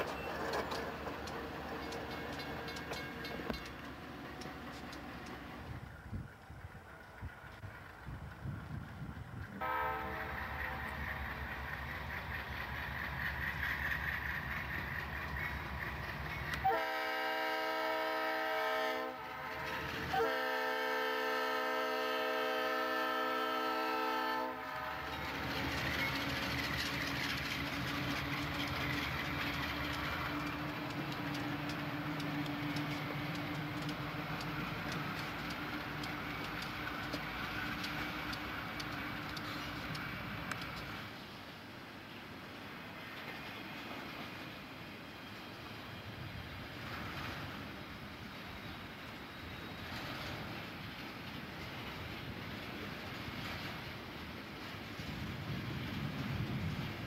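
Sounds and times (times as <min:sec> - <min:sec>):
wheels clacking on rail joints: 0:00.0 - 0:17.0, 0:24.9 - 0:41.2
diesel locomotive engine rumbling: 0:00.0 - 0:57.0
train air horn: 0:09.6 - 0:10.9, 0:16.6 - 0:25.2.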